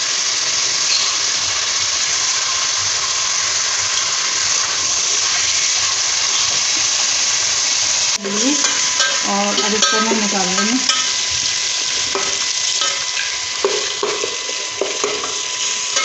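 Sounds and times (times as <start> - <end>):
chicken sizzling in hot oil: 0.0 - 16.0.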